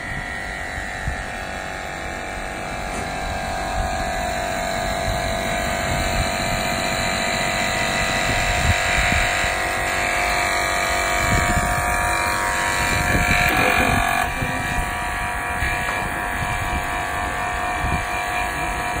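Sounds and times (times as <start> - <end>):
wind buffeting microphone: 11.2 - 12.1
steady hum: 11.4 - 15.4.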